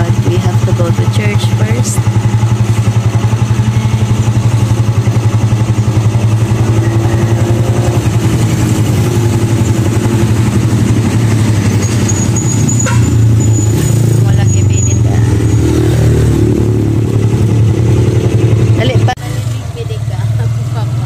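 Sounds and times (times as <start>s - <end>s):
vehicle engine idling: 0.0s - 21.0s
thin high tone: 6.4s - 9.2s.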